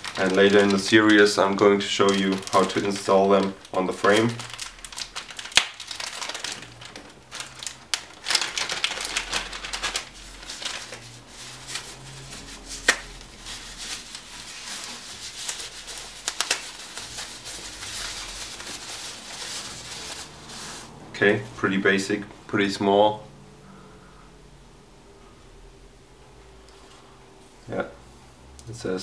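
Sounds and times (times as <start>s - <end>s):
plastic packaging crinkling: 0.0s - 20.9s.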